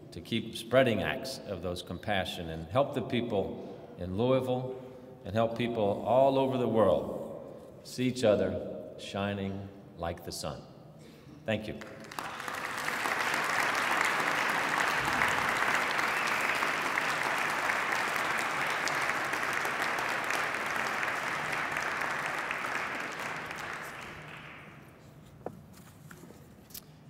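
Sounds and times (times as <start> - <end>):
audience applauding: 11.8 - 25.0.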